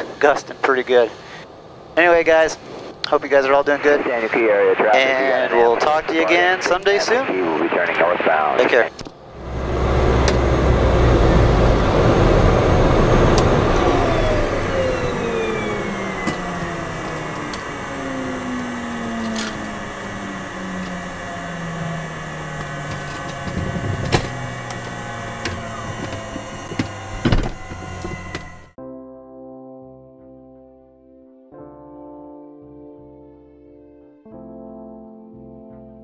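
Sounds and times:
turboprop engine spooling down: 9.2s - 28.8s.

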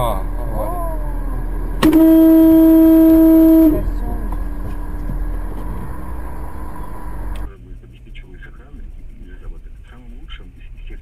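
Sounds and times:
car horn blast: 0.0s - 7.5s.

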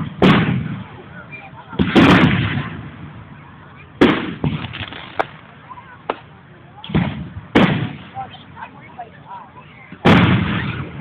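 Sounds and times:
sharp firework cracks: 0.0s - 0.9s, 1.8s - 2.9s, 4.0s - 8.3s, 10.0s - 11.0s
firework booms: 0.0s - 1.0s, 1.8s - 3.3s, 4.0s - 5.4s, 6.8s - 8.3s, 10.0s - 11.0s.

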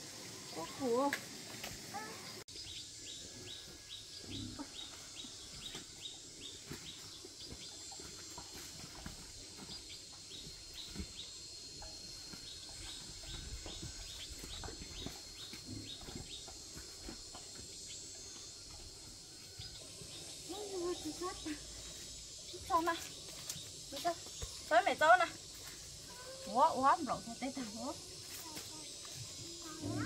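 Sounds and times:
steady high hiss: 17.7s - 30.0s.

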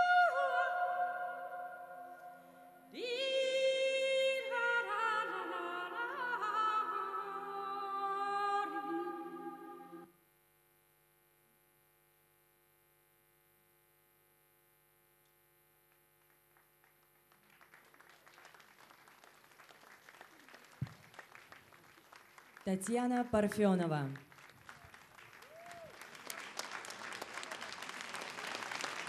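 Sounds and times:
long held sung notes: 0.0s - 10.1s
faint clapping: 15.9s - 29.0s.

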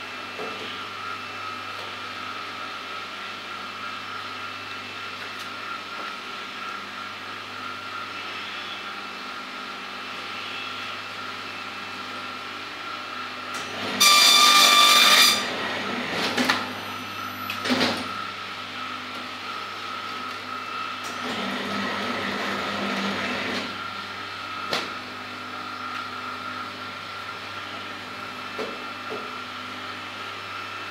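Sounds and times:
machine high whine: 5.7s - 12.1s, 12.8s - 28.4s
binding machine hum: 13.5s - 29.1s.

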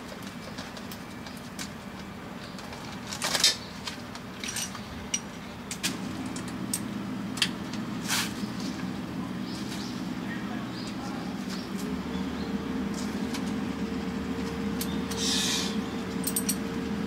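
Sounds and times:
steady low hum: 3.9s - 17.0s
metal tools clinking: 4.4s - 5.3s, 16.1s - 16.7s.

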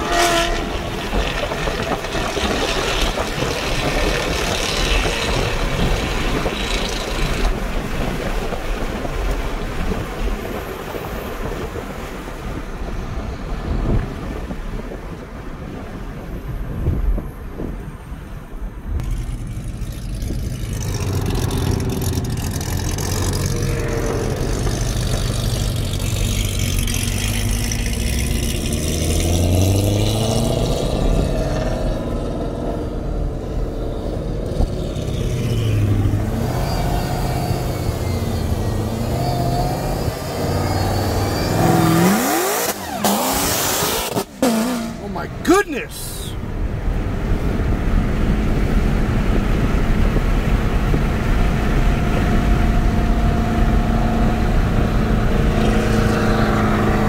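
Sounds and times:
car engine accelerating and shifting: 0.0s - 14.9s, 18.9s - 45.4s, 46.4s - 57.0s.

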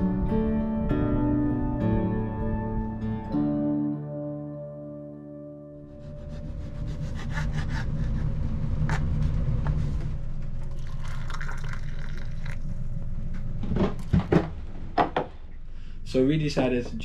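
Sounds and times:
hot water pouring: 10.6s - 12.9s.

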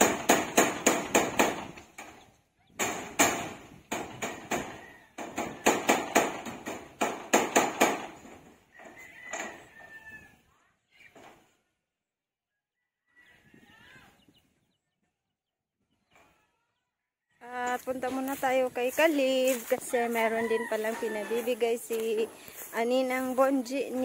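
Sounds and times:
hammer on metal roofing: 0.0s - 2.2s, 2.8s - 8.6s.

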